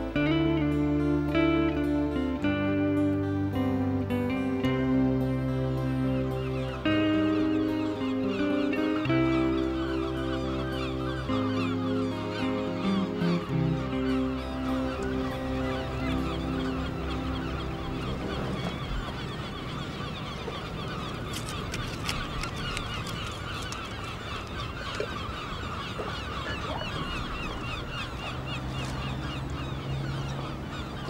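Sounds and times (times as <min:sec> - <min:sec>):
flock of birds chattering: 0:04.3 - 0:31.0.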